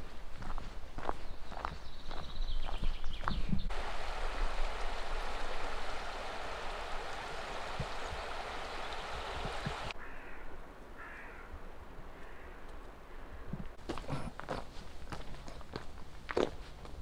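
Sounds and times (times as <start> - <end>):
rushing water hiss: 3.7 - 10.0.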